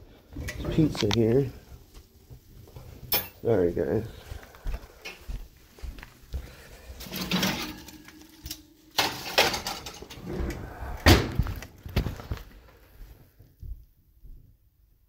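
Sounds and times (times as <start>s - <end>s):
metal pan clattering: 7.0s - 10.2s.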